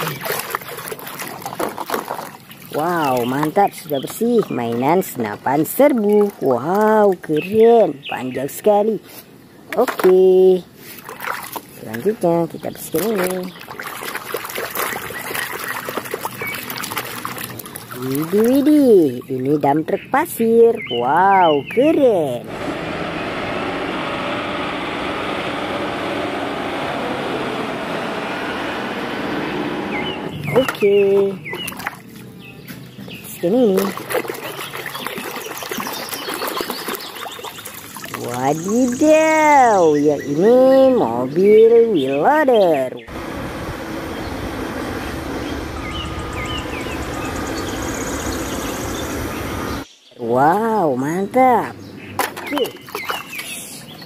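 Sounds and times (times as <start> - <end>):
truck diesel engine running: 22.5 - 30.7, 43.0 - 49.8.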